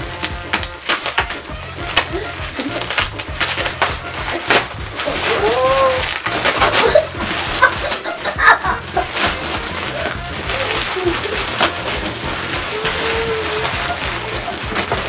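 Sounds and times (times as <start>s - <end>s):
foil gift wrap tearing: 0.0s - 15.0s
child exclaiming: 5.1s - 6.1s, 12.6s - 14.0s.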